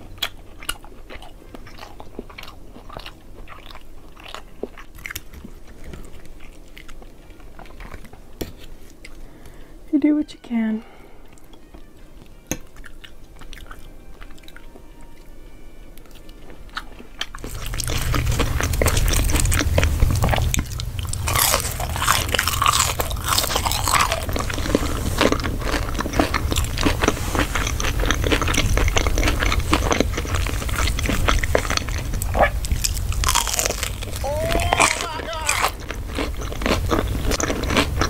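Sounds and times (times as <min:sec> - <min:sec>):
crunchy chewing of fried food: 0:00.0 - 0:09.8, 0:11.2 - 0:38.0
steady low hum: 0:17.3 - 0:38.0.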